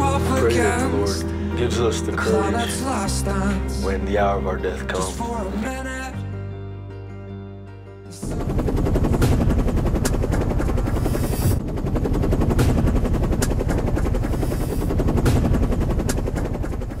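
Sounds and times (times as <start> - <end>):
helicopter rotor chopping: 8.1 - 17.0
sharp cracks: 12.4 - 17.0.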